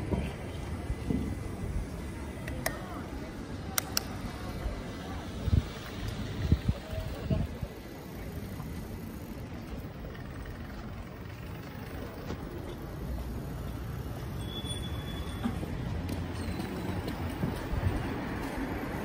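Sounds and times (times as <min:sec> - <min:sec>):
bicycle tyre noise: 0:02.9 - 0:19.0
wind on microphone: 0:05.3 - 0:07.8.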